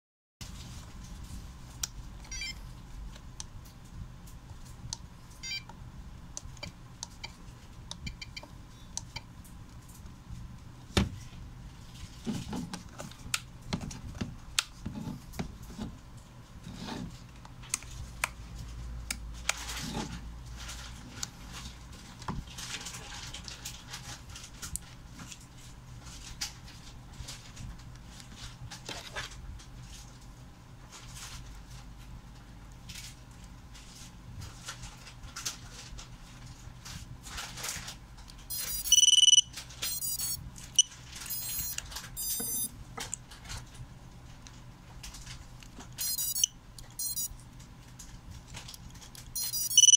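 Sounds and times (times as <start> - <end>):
short beeps: 38.5 - 40.4, 41.3 - 42.7, 46.0 - 47.3, 49.4 - 49.9.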